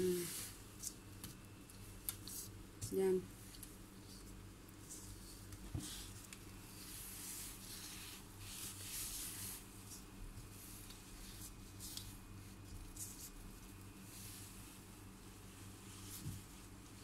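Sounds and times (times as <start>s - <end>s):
hands brushing dough: 4.1s - 17.0s.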